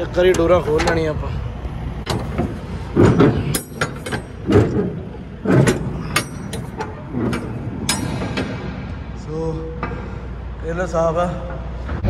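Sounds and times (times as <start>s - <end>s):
metal clanks of container door: 2.0s - 8.7s.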